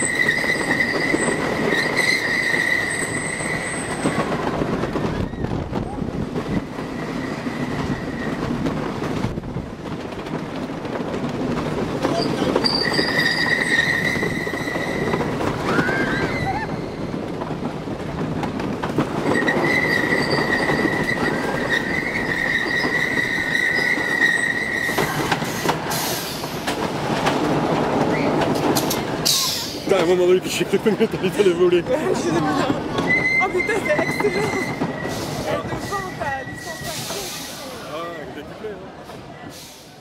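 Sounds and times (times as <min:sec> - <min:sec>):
high wheel squeal: 0:00.0 - 0:04.3, 0:12.1 - 0:17.1, 0:19.2 - 0:26.4, 0:33.0 - 0:38.4
roller coaster wheels rumbling: 0:00.0 - 0:40.0.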